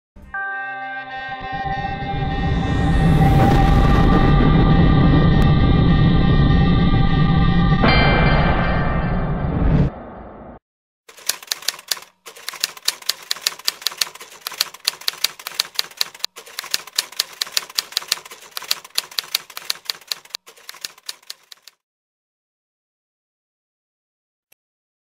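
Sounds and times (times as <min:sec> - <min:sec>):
typewriter keystroke clicks: 0:11.1 - 0:21.8.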